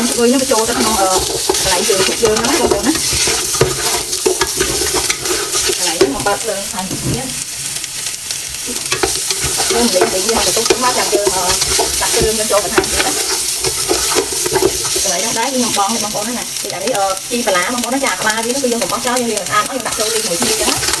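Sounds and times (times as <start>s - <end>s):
spatula scraping and knocking pot: 0.0s - 7.3s, 8.8s - 15.7s, 19.9s - 21.0s
meat sizzling in a pot: 0.0s - 21.0s.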